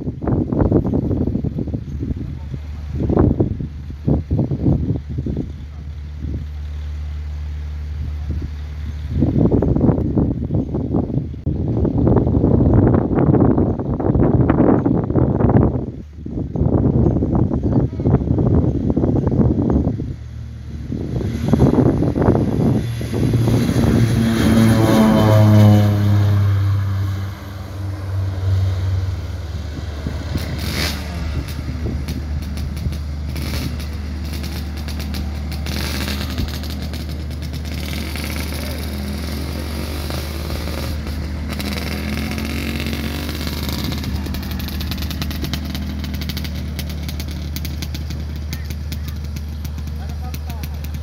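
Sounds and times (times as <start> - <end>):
propeller plane passing: 19.6 - 51.0.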